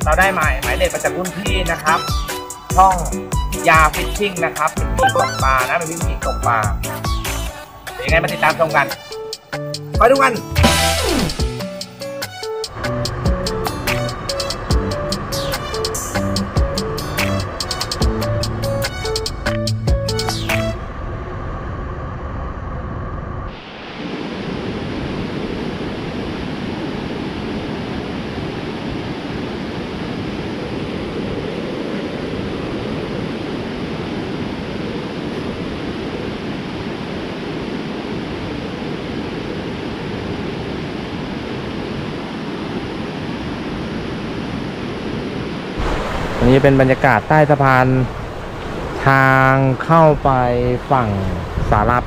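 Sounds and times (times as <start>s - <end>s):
river water rushing: 12.7s - 19.4s, 45.6s - 52.0s.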